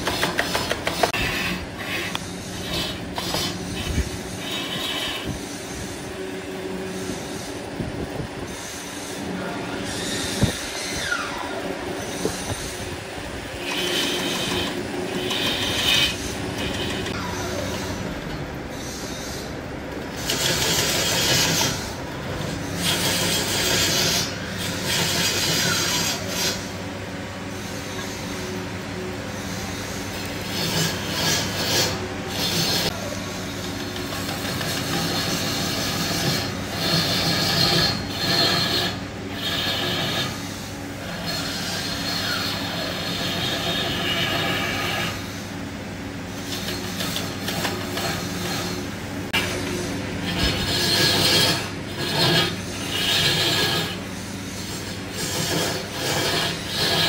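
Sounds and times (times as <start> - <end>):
turning tool cutting wood: 0.0 - 6.1, 8.5 - 26.8, 29.5 - 45.4, 46.3 - 57.0
wood lathe humming: 0.0 - 57.0.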